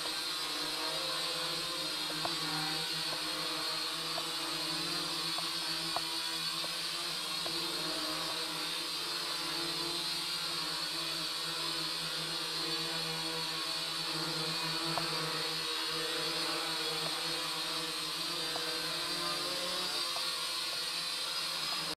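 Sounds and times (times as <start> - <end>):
toy drone propellers buzzing: 0.0 - 21.9.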